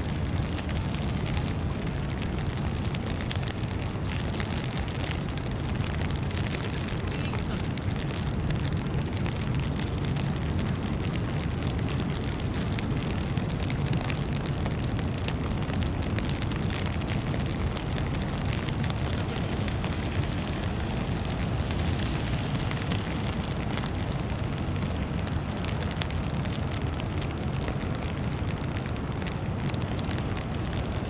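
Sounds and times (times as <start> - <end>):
low city rumble: 0.0 - 31.0.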